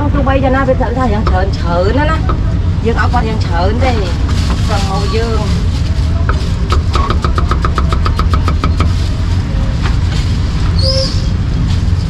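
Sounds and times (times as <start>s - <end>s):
low rumble of street traffic: 0.0s - 12.0s
brief high squeal: 10.8s - 11.4s.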